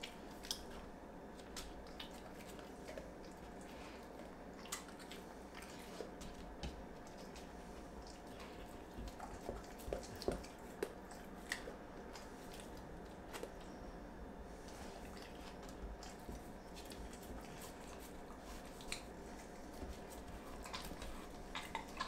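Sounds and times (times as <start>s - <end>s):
dog smacking and licking: 15.0s - 22.0s.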